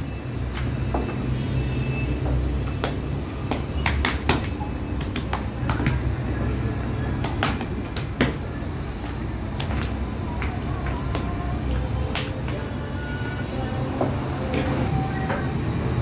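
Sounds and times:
dough slapping on metal table: 2.3 - 6.2, 7.1 - 11.4.

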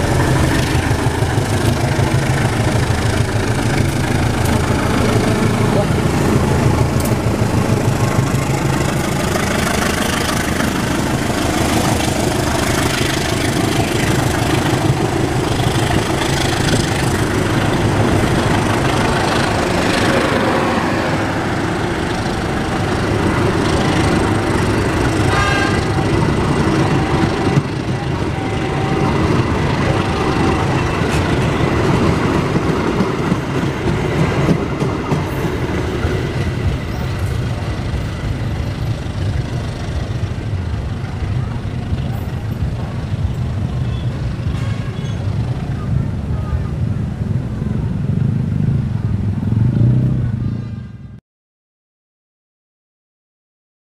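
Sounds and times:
train wheels clattering over rail joints: 0.0 - 20.4, 28.8 - 40.6
diesel locomotive engine passing: 0.0 - 50.7.

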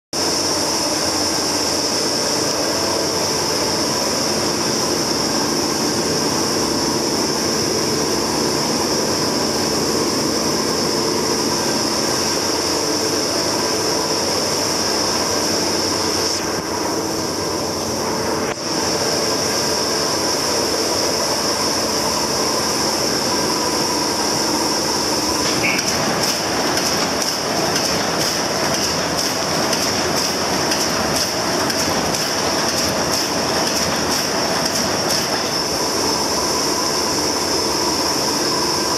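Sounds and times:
machine clatter with high whine: 0.2 - 38.9
rapid regular mechanical clicking: 25.4 - 35.7.

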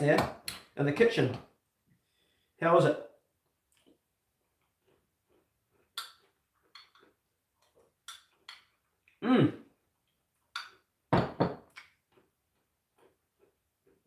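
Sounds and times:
mouth sounds of eating: 7.0 - 9.8.

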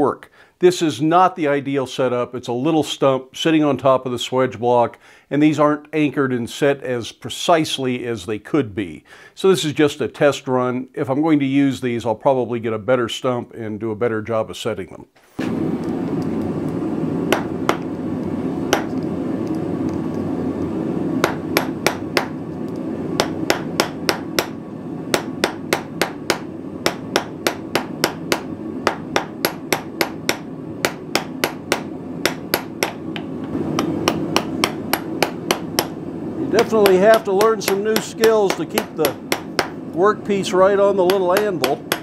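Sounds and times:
hammer striking metal on anvil: 21.2 - 22.3, 23.2 - 36.0, 36.8 - 39.8, 41.0 - 42.0.

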